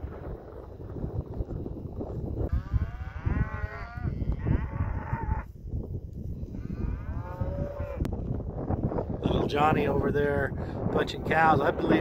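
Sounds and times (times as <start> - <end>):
cattle mooing: 2.5 - 5.5.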